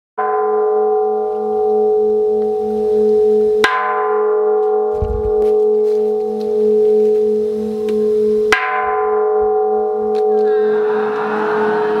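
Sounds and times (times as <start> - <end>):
soft low thud: 5.0 - 5.5.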